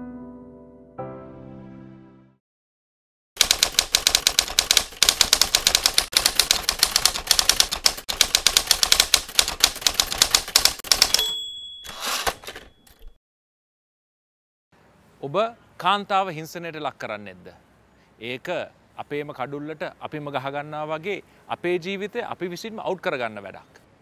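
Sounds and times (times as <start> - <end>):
typewriter keystrokes: 3.4 - 13.2
typewriter bell ding: 10.6 - 13.2
carriage return rasp: 11.9 - 13.1.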